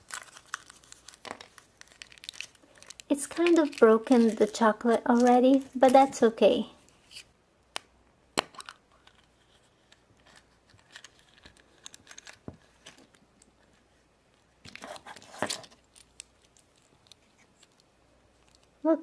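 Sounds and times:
plastic capsule snapping open: 7.7 - 9.3.

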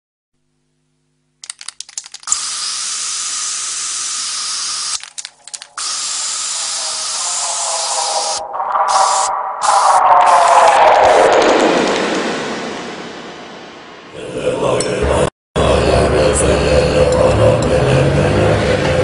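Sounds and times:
spray paint can hissing: 2.2 - 5.0, 5.6 - 10.5.

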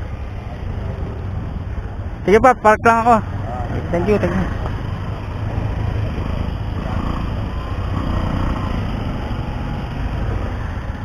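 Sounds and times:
faint street voices: 0.0 - 11.0
scooter engine rumbling: 3.2 - 11.0.

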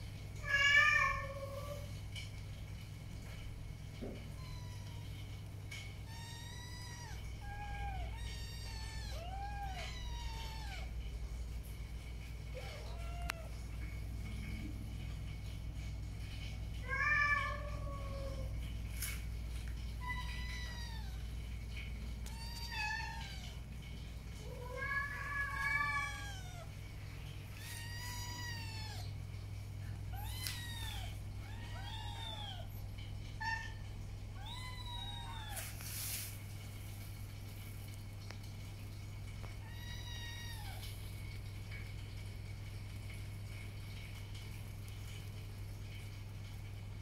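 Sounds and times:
steady low hum: 0.0 - 47.0
kittens meowing: 4.3 - 5.2, 6.0 - 11.0, 24.6 - 26.7, 27.6 - 29.2, 30.1 - 35.7.

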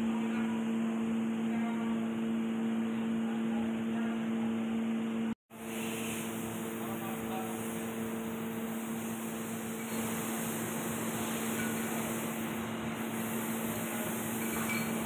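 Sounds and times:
machine shop hum: 0.0 - 15.0.

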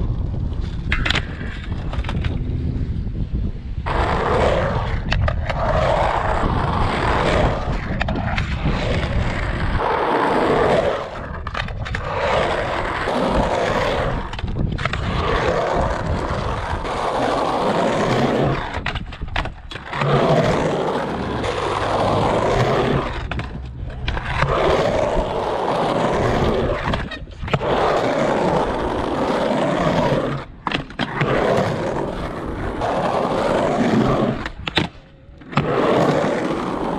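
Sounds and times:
skateboard wheels rolling on concrete: 0.0 - 36.9.

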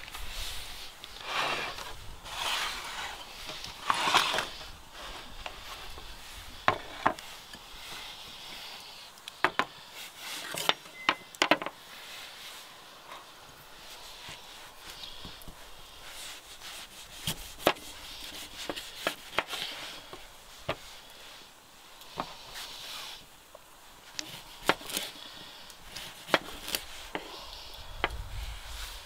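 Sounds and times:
rough scraping strokes: 0.0 - 9.2, 11.8 - 21.5.

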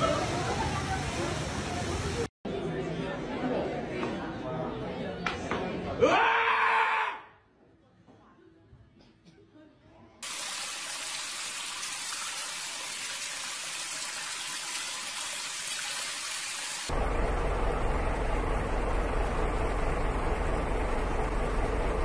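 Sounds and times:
heavy rain on wet street: 0.0 - 2.3
low rumbling noise: 16.9 - 22.0.

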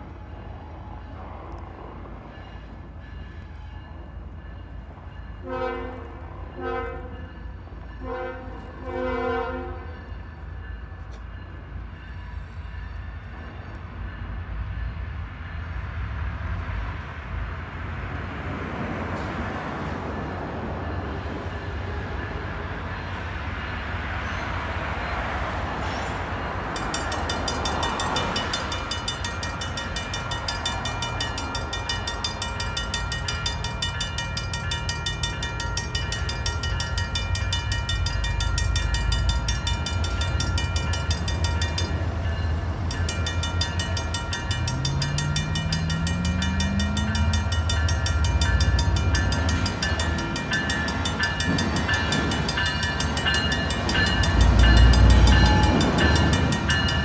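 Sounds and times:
locomotive air horn blasts: 5.4 - 7.2, 8.0 - 10.0
crossing signal bell ringing: 26.3 - 57.0
locomotives rumbling: 26.3 - 57.0.

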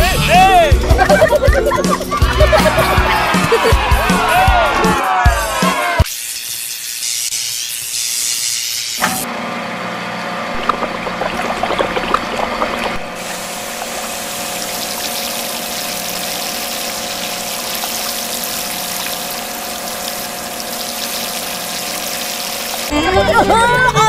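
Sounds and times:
water spray sputtering and hissing: 6.1 - 9.0, 10.6 - 22.9
water pump humming: 9.0 - 23.1.

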